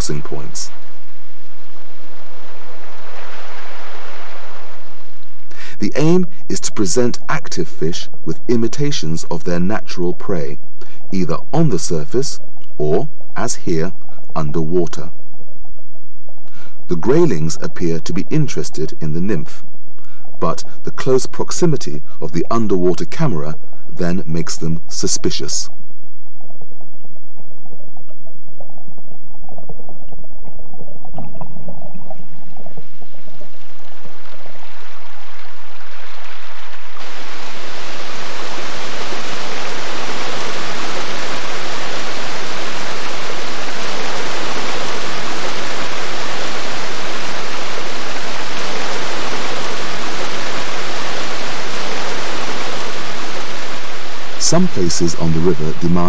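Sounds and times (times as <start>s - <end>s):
waterfall rushing: 0.0s - 6.2s, 32.8s - 56.0s.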